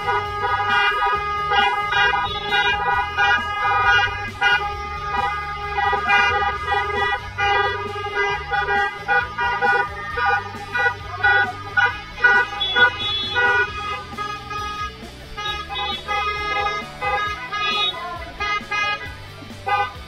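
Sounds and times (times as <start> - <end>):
moving bass line: 0.0 - 20.0
organ-like chords: 0.0 - 20.0.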